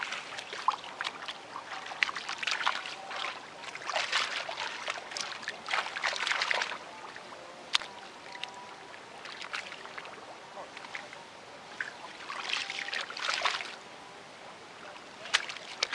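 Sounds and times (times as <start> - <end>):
hands splashing in water: 0.0 - 6.8, 11.8 - 13.8, 15.2 - 15.9.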